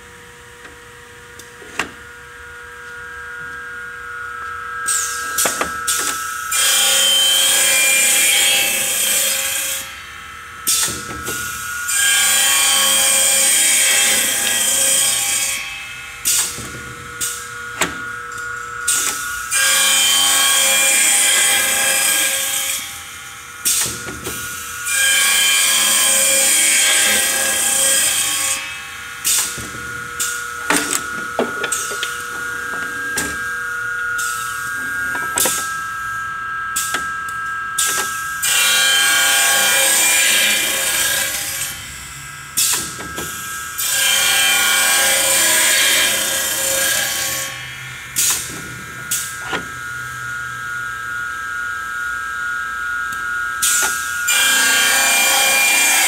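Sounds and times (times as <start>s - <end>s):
saw blade whining: 2.8s - 10.0s, 10.6s - 56.0s
saw cutting wood: 4.8s - 10.0s, 10.7s - 36.0s, 36.8s - 41.8s, 42.6s - 49.8s, 53.6s - 56.0s
clamp clicks and clunks: 29.3s - 33.5s, 35.1s - 35.8s, 37.8s - 38.2s.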